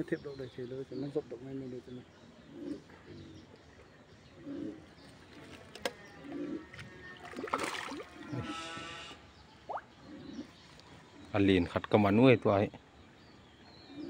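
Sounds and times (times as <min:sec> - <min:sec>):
splash in pond water: 0:07.2 - 0:08.2.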